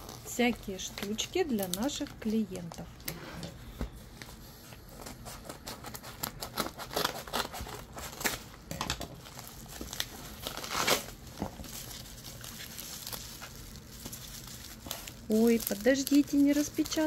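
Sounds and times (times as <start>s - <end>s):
bubble-wrap package crackle: 0.0s - 3.0s, 4.1s - 17.0s
paper envelope crinkling: 9.2s - 17.0s.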